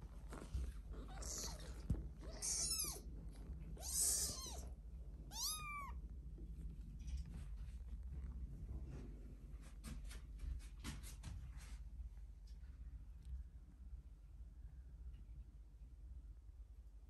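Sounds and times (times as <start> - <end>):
kittens mewing: 0.9 - 3.1, 3.8 - 4.7.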